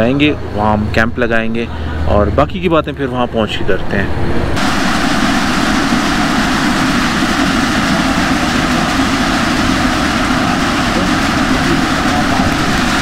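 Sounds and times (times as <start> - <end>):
rain on a metal roof: 4.6 - 13.0.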